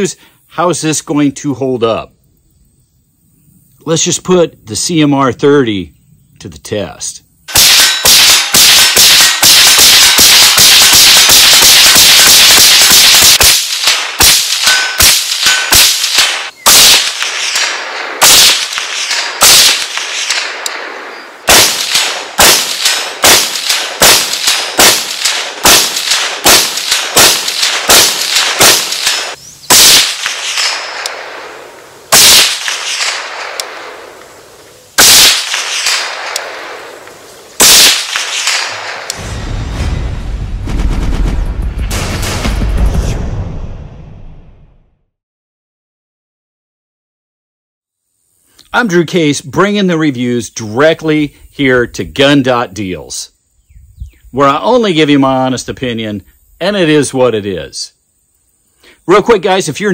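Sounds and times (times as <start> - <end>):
rifle shots: 7.5 - 39.4, 40.8 - 43.2.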